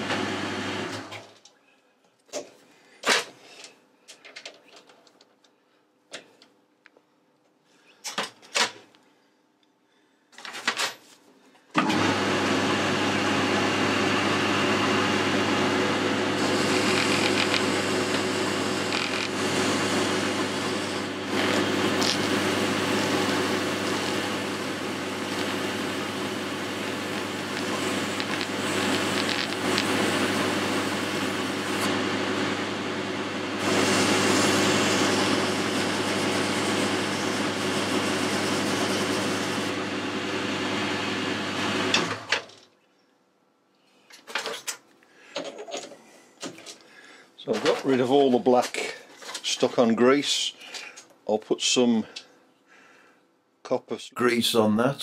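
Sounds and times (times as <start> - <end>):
lathe running with steady hum: 0.0 - 1.1, 11.8 - 42.1.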